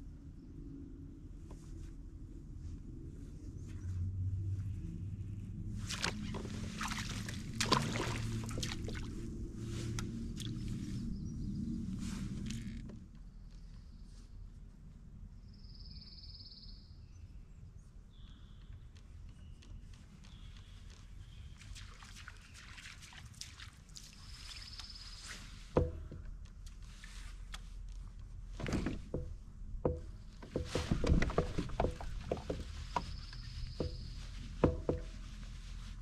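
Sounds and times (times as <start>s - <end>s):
steady low rumble: 0.0s - 15.6s, 25.6s - 36.0s
knocks on a plastic kayak: 25.8s - 26.2s, 28.7s - 32.6s, 33.8s - 35.1s.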